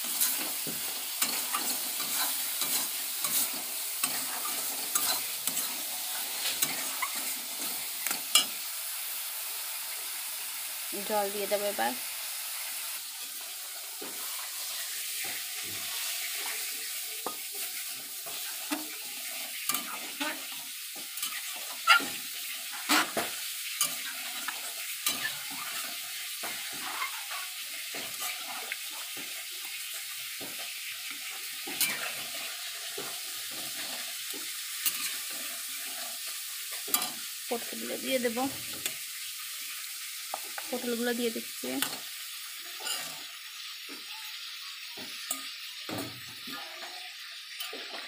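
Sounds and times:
curry gravy sizzling in a pan: 0.0s - 48.0s
metal spatula scraping a pan: 0.1s - 8.6s, 14.0s - 37.3s, 41.8s - 43.4s, 45.0s - 48.0s.

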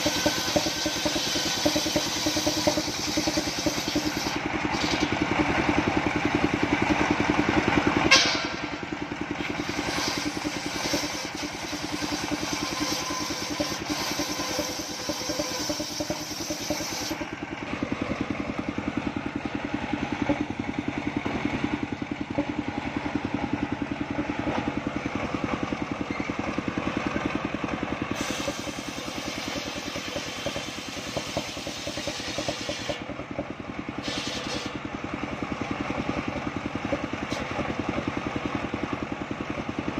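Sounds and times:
blade rasping through wood: 0.0s - 5.0s, 9.4s - 17.3s, 28.2s - 33.0s
sawmill engine running: 0.0s - 39.9s.

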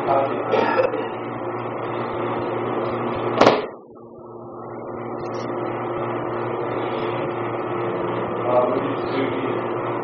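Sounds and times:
mechanical hum with hiss: 0.0s - 10.0s
sharp smack: 3.4s - 3.7s.

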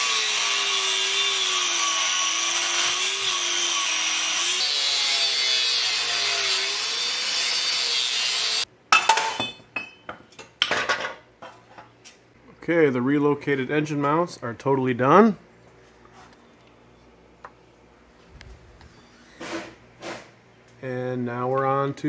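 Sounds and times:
angle grinder cutting steel: 0.0s - 8.7s.

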